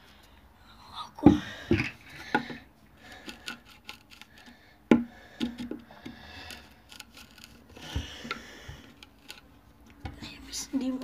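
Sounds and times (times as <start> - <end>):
hand tool scraping wood: 1.2 - 9.5
knocks on wooden board: 4.9 - 5.8.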